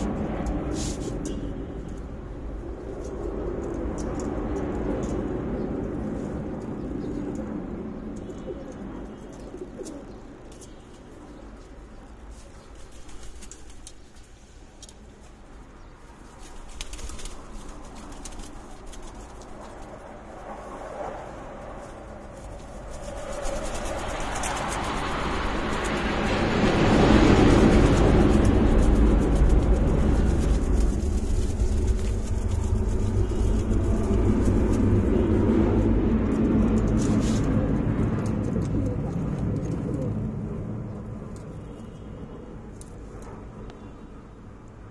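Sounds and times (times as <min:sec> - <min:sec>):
pigeons cooing: 0:08.4 - 0:10.8, 0:38.6 - 0:40.5
low engine rumble: 0:17.3 - 0:42.0.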